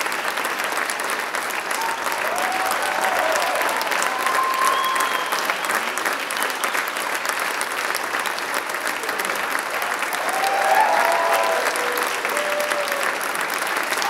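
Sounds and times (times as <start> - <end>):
audience applauding: 0.0 - 14.0
audience cheering: 1.7 - 6.6, 9.7 - 14.0.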